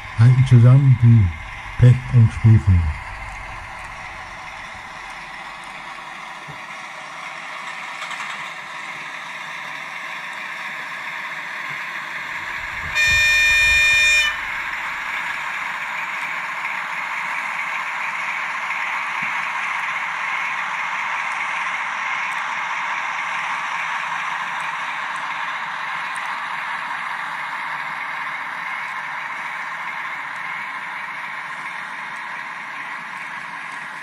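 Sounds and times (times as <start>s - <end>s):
model train diesel engine sound: 0.0s - 34.0s
train horn blast: 12.4s - 15.6s.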